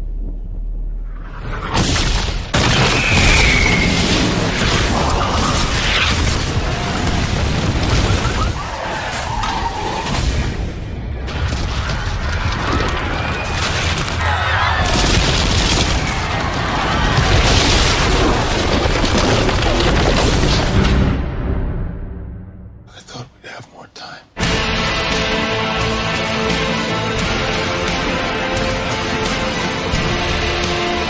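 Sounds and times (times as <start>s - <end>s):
explosions and booms: 1.3s - 21.9s
crashing debris: 11.2s - 21.0s
trailer music: 20.3s - 23.0s, 24.4s - 31.0s.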